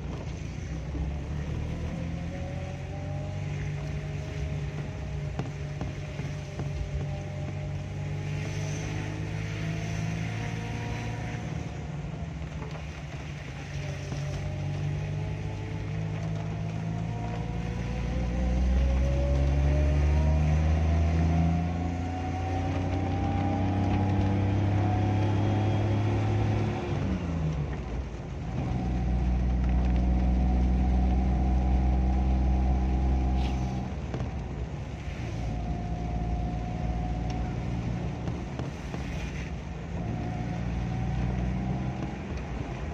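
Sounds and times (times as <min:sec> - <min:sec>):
vehicle engine from inside cabin: 0:00.0 - 0:42.9.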